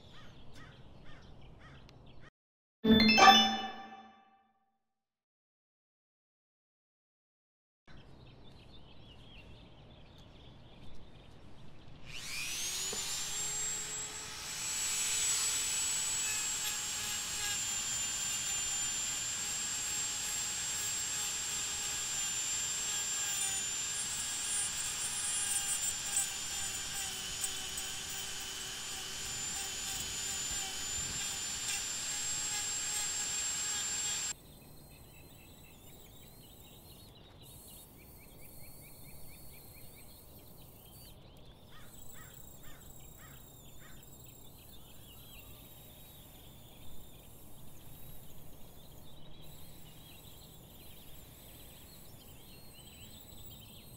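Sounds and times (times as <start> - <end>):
rotary tool whining: 12.0 - 34.4, 45.3 - 53.9.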